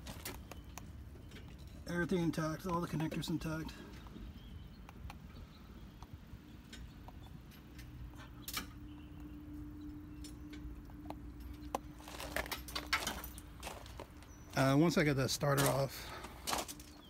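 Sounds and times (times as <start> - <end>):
light clicks and crunches: 9.6 - 14.7, 15.4 - 17.0.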